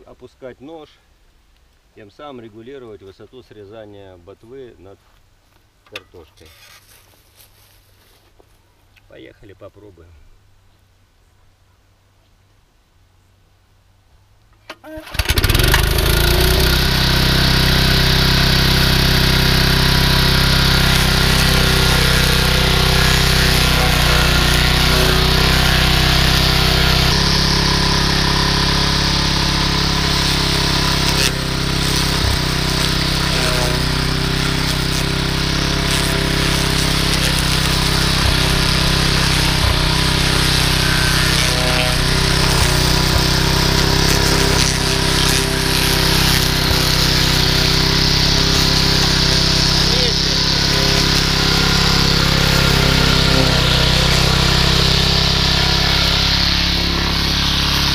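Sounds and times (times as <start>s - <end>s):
lawnmower engine running: 14.7s - 57.9s.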